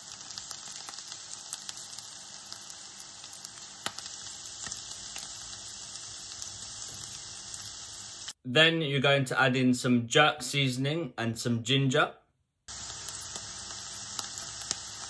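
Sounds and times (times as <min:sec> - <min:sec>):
small crackles and pops: 0:00.0 - 0:08.3, 0:12.7 - 0:15.0
onion frying in oil: 0:00.0 - 0:08.4, 0:12.7 - 0:15.0.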